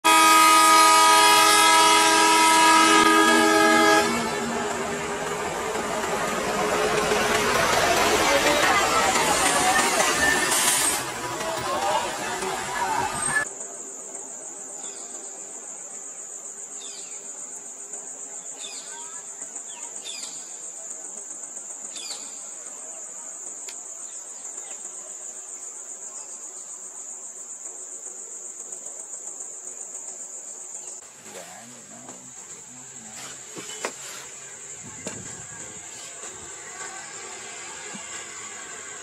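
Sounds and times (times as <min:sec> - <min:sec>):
insect chorus drone: 0:00.0 - 0:39.0.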